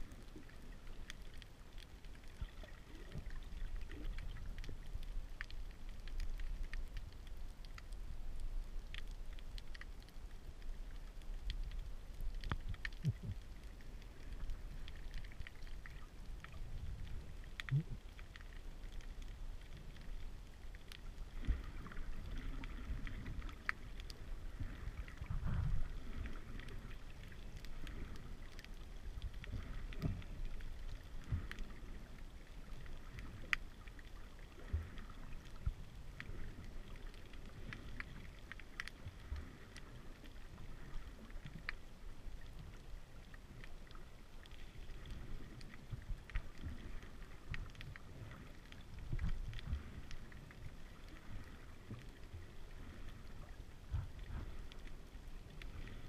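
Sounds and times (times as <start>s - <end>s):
muffled underwater rumbling wash: 0.0s - 56.0s.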